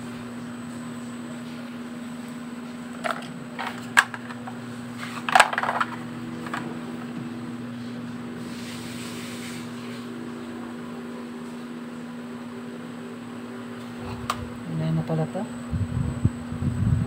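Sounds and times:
steady hum: 0.0 - 17.0
makeup items clattering in plastic basket: 2.9 - 6.7.

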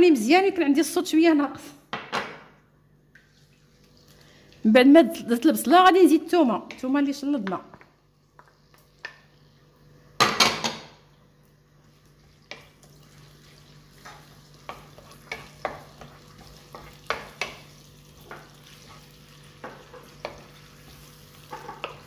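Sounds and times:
garlic sizzling in hot oil: 8.2 - 9.9, 11.5 - 22.0
wooden spoon scraping a pan: 13.9 - 22.0
spoon knocking on pan: 14.0 - 18.5, 19.6 - 20.5, 21.4 - 22.0.

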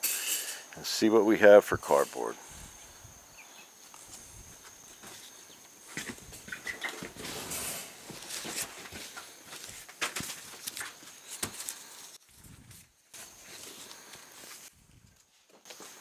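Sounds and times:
cardboard scraping and rustling: 5.9 - 14.7
chicks peeping: 6.4 - 7.1.

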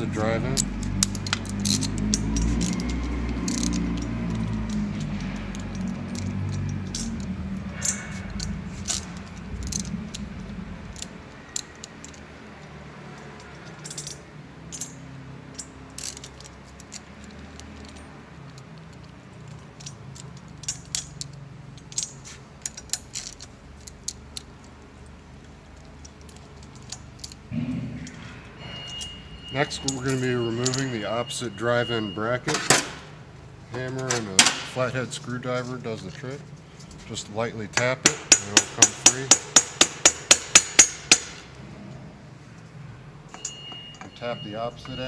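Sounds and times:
hand ratchet clicking: 0.3 - 27.4, 37.8 - 41.5
socket clinking against metal: 10.9 - 24.7.

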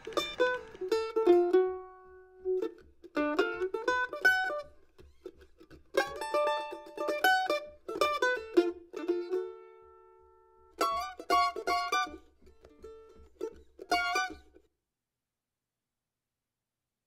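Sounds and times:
plucked string instrument music: 0.0 - 14.7.

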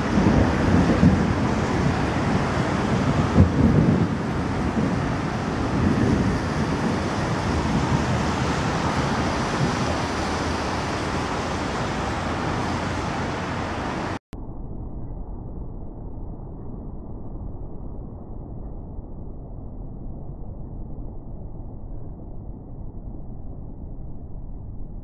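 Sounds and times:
city noise: 0.0 - 14.2
thunder rumbling: 0.0 - 14.2
wind: 0.0 - 25.0.

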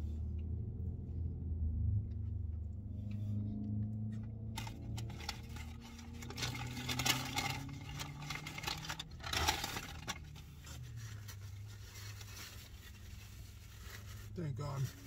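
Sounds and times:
paper wrapper crinkling: 4.6 - 15.0.

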